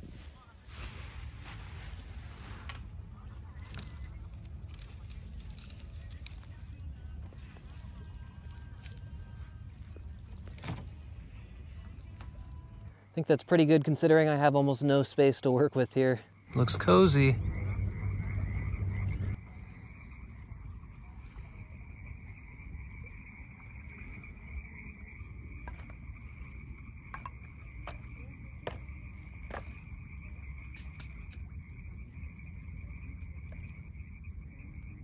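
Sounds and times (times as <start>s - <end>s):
frogs and insects calling: 15.8s - 35.0s.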